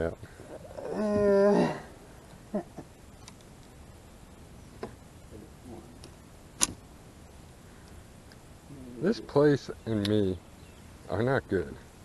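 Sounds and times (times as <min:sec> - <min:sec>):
man humming: 0:00.6 - 0:02.0, 0:08.7 - 0:09.1.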